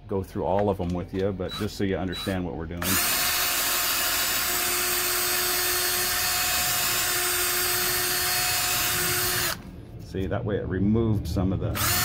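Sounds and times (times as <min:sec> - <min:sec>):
cordless drill whining: 0:01.5 - 0:09.6, 0:11.8 - 0:12.0.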